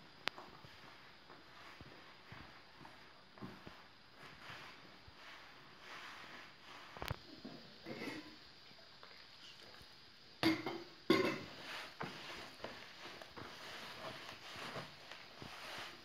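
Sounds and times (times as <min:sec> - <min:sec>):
hands kneading dough: 0:11.5 - 0:16.0.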